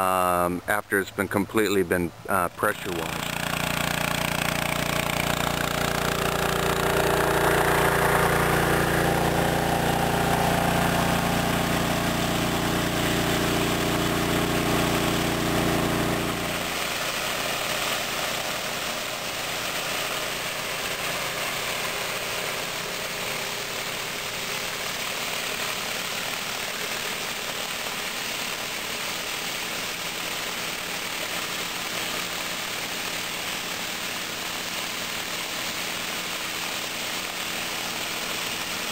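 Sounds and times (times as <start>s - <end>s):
water spray hissing: 2.2s - 38.9s
pressure washer engine running: 2.6s - 38.9s
surface cleaner scrubbing concrete: 2.7s - 38.9s.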